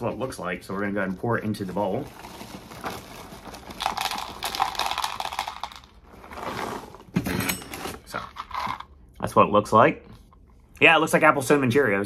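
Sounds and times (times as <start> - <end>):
cereal clattering: 1.6 - 7.1, 8.1 - 8.9
cereal pouring into bowl: 1.8 - 7.0, 8.2 - 8.8.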